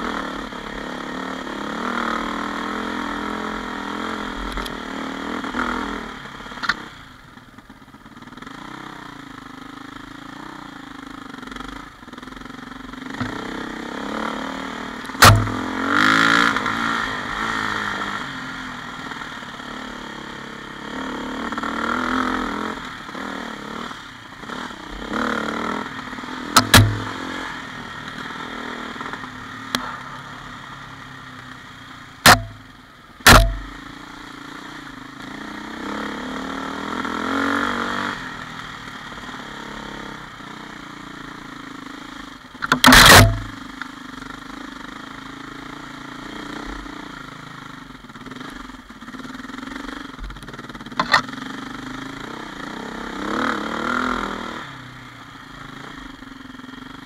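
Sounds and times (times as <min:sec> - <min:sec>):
dirt bike engine revving: 0:00.0 - 0:07.0, 0:08.2 - 0:31.3, 0:32.1 - 0:47.5, 0:48.3 - 0:57.0
sharp knocks: 0:15.2 - 0:15.7, 0:26.6 - 0:27.1, 0:32.2 - 0:32.6, 0:33.2 - 0:33.8.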